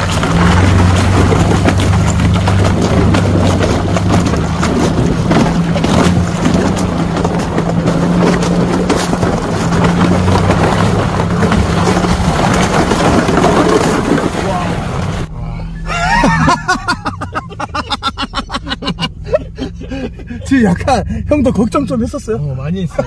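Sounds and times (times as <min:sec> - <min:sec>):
tyres crunching over ice and stones: 0:00.0 - 0:15.3
pickup engine running: 0:00.0 - 0:23.0.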